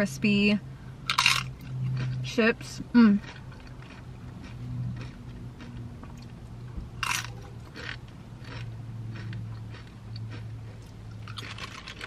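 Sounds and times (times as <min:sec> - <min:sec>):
crunching crispy chips: 0:01.1 - 0:02.2, 0:07.0 - 0:10.4, 0:11.1 - 0:12.0
chewing: 0:01.1 - 0:02.3, 0:03.2 - 0:12.0.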